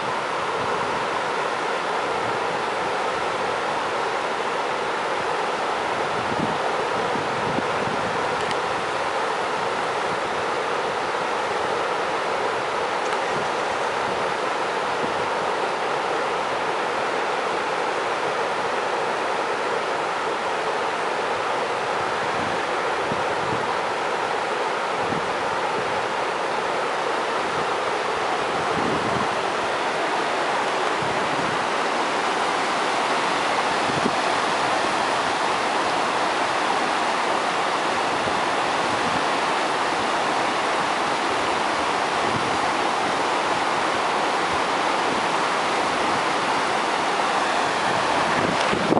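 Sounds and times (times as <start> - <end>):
floodwater rushing over a step: 25.6 - 48.9.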